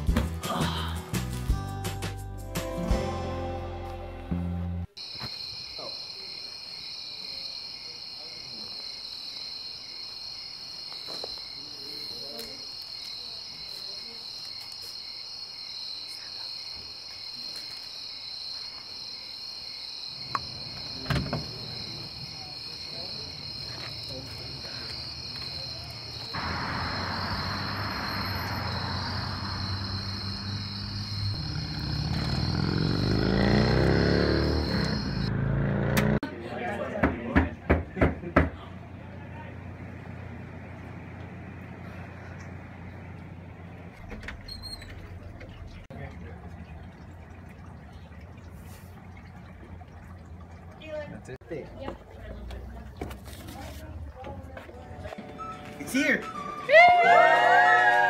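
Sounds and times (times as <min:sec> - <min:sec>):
crickets chirping: 0:05.0 - 0:35.3
car driving past: 0:20.2 - 0:36.3, 0:39.0 - 0:45.9.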